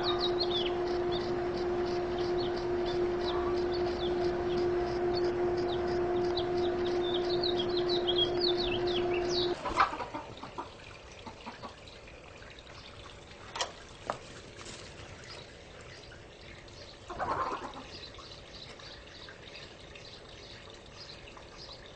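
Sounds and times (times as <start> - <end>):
small birds chirping: 0.0 - 10.6, 14.1 - 21.9
steady hum: 0.0 - 11.2.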